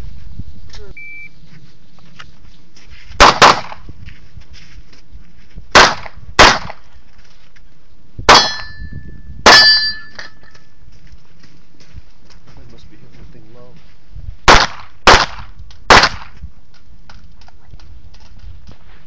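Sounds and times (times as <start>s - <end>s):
handgun shots: 3.2s - 3.8s, 5.7s - 6.8s, 14.5s - 16.4s
metallic ring of steel targets: 8.3s - 10.6s.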